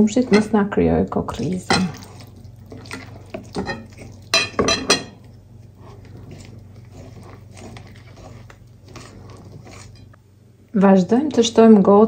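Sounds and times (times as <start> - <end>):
whisk mixing batter: 1.9 - 4.3, 5.6 - 10.1.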